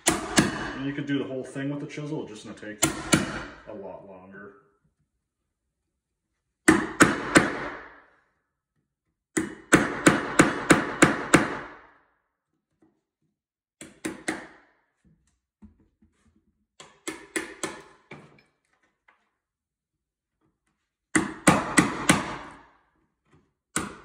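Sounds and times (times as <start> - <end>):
hammer striking chisel: 0.0 - 0.8, 2.8 - 3.6, 6.6 - 8.2, 9.3 - 11.9, 13.8 - 14.7, 16.8 - 18.6, 21.1 - 24.0.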